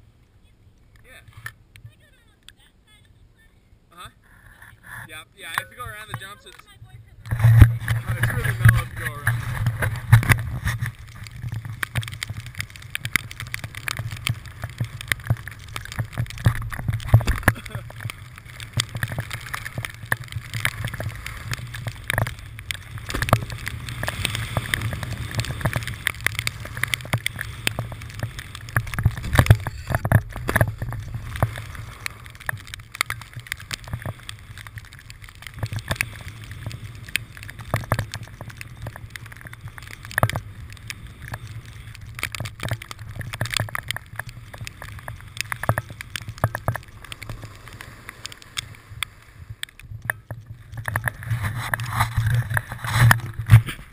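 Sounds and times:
wind rumble on microphone: 4.4 - 47.9, 48.6 - 53.9
snowboard scraping over snow: 5.0 - 34.6.

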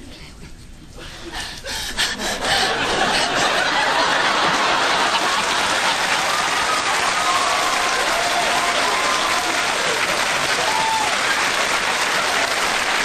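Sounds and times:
audience laughing: 2.3 - 6.8.

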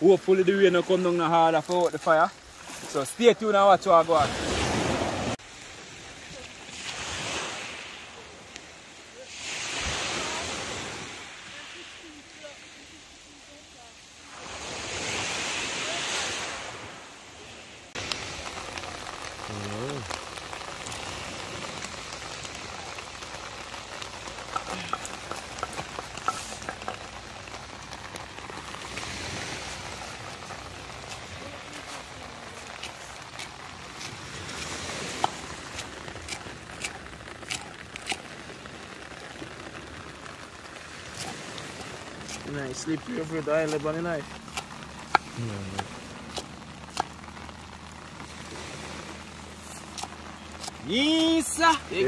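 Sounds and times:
steady rain falling: 0.0 - 52.0
surf washing on shore: 0.0 - 52.0
light ticks and drips: 8.4 - 8.7, 18.0 - 52.0.

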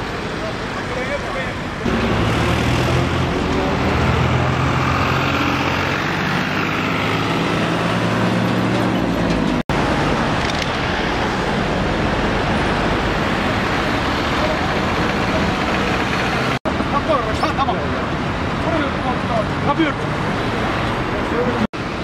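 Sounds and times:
heavy vehicle engine hum: 0.0 - 17.0
passing traffic: 0.0 - 22.0.

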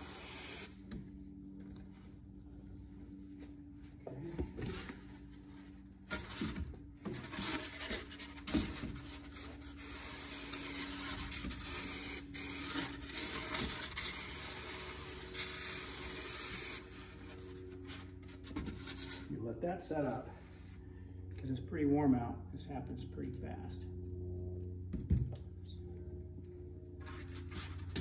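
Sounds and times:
aerosol spray hissing: 0.0 - 0.8
rustling foam and cardboard: 4.4 - 11.9, 16.9 - 19.4, 27.0 - 28.0.

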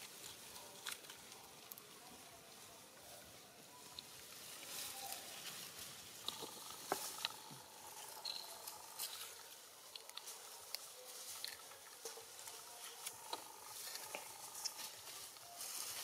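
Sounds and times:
dry leaves rustling: 4.0 - 16.0.

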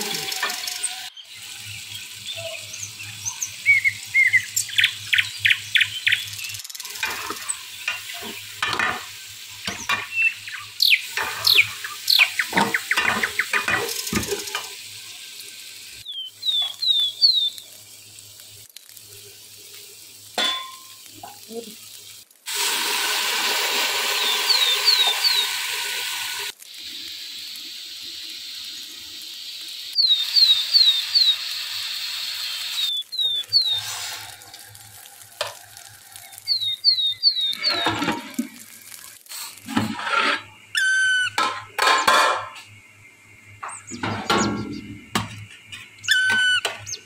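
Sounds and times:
birds chirping: 0.0 - 14.2, 16.0 - 18.1, 24.1 - 25.9, 30.0 - 31.6, 32.7 - 34.8, 35.6 - 38.1
food sizzling in oil: 0.0 - 47.0
metal spatula scraping a pot: 39.6 - 40.6.

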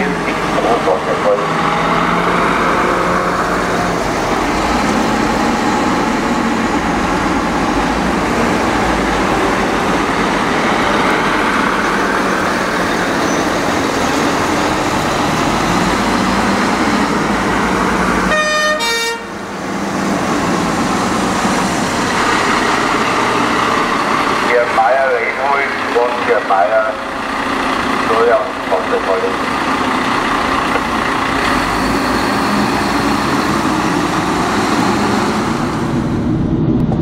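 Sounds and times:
fire engine sirens: 0.0 - 36.7
diesel engines: 0.0 - 37.0
vehicle horns: 18.3 - 19.4.

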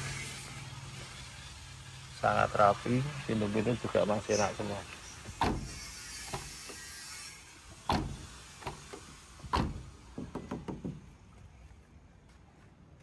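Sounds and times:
car door shutting: 5.3 - 6.5, 7.9 - 9.9.

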